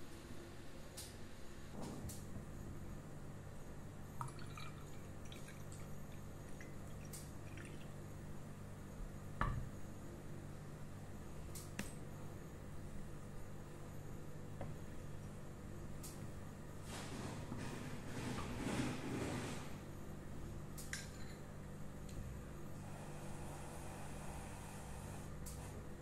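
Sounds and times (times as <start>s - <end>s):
low steady hum: 0.0s - 26.0s
liquid trickling and dripping: 4.2s - 7.9s
tea pouring into a glass: 4.2s - 8.0s.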